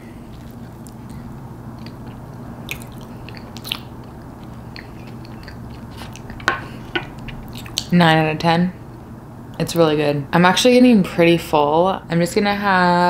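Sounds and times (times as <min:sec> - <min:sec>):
steady low hum: 0:00.0 - 0:13.0
wet chewing mouth clicks: 0:00.3 - 0:06.5.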